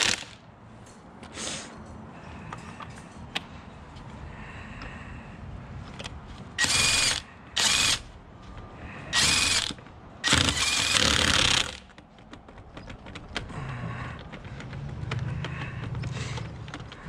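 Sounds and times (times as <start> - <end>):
cordless impact wrench bursts: 0.0 - 0.4, 6.6 - 8.1, 9.1 - 11.9.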